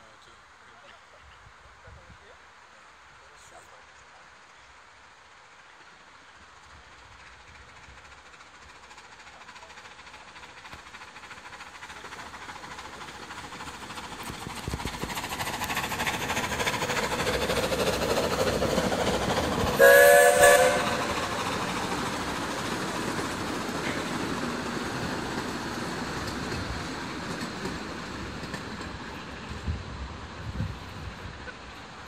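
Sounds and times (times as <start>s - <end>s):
miniature steam train running: 1.9s - 32.0s
steam whistle blast: 19.8s - 21.5s.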